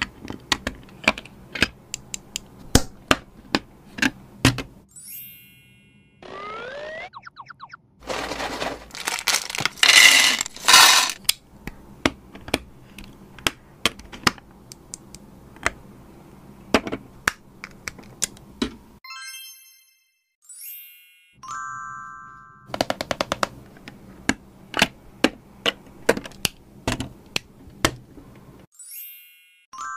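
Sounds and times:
bright chime sound effect: 4.9 - 6.6, 19.0 - 22.6, 28.7 - 29.9
plastic bag crinkling: 8.0 - 11.2
plastic bricks clicking: 8.1 - 11.4.

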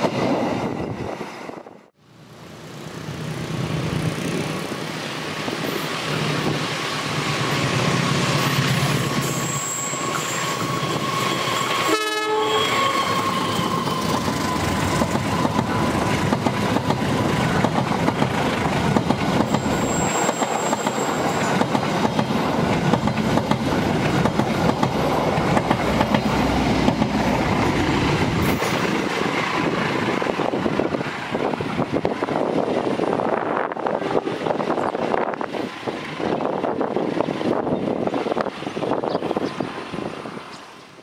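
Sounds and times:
high squeal: 6.7 - 15.9, 19.5 - 21.6
train horn blast: 11.7 - 13.8, 33.8 - 34.6.

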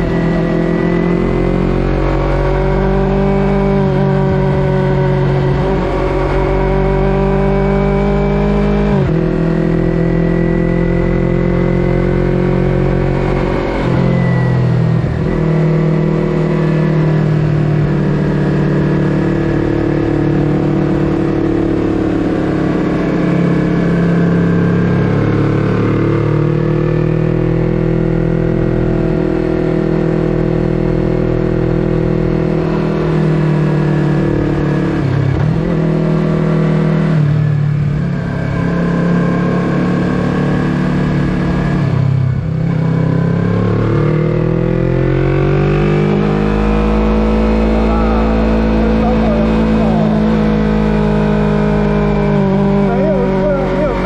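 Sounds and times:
motorcycle exhaust note: 41.1 - 54.0.

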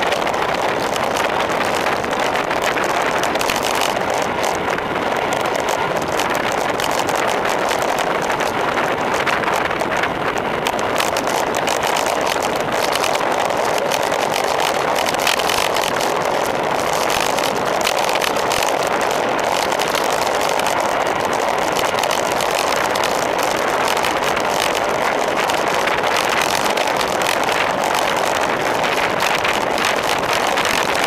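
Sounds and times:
road noise: 0.0 - 31.0.

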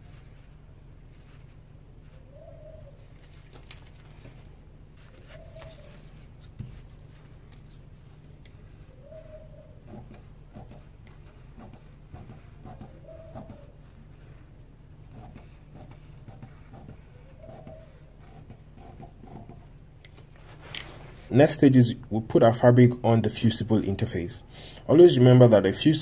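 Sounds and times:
low steady hum: 0.0 - 26.0
bird calling: 2.1 - 3.1, 5.0 - 6.2, 8.8 - 10.1, 12.6 - 13.8, 17.0 - 18.0.

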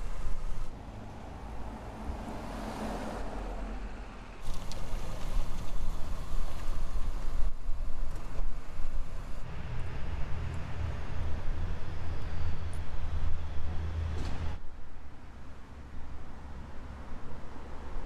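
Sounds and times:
road noise: 0.0 - 18.0.

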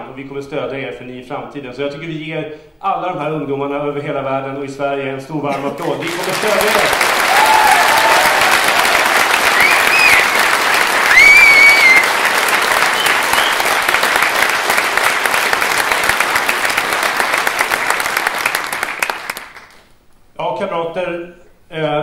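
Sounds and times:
audience applauding: 5.5 - 19.9
shrill whistles: 9.2 - 13.8.

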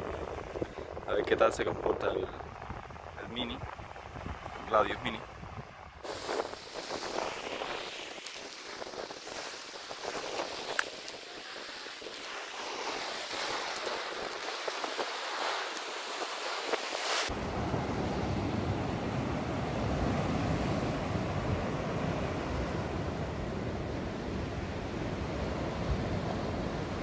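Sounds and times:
low wind rumble: 0.0 - 27.0
surf washing over rocky shore: 0.0 - 27.0
wind on microphone: 0.0 - 27.0.

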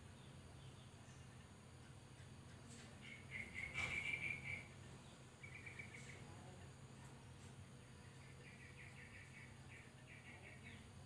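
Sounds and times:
bird trilling and chattering: 0.8 - 6.3.

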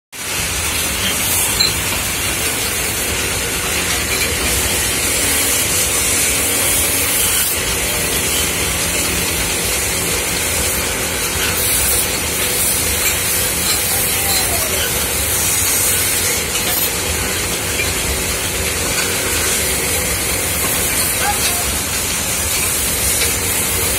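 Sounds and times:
lathe running: 0.2 - 23.9.

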